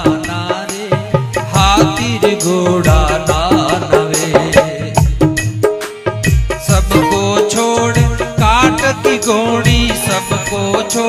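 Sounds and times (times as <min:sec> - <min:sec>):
harmonium melody: 0:05.9 - 0:11.0.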